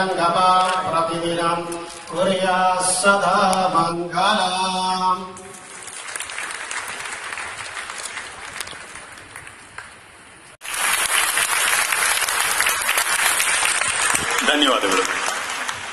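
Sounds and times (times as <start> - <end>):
large audience applauding: 5.5 - 9.9, 10.6 - 15.9.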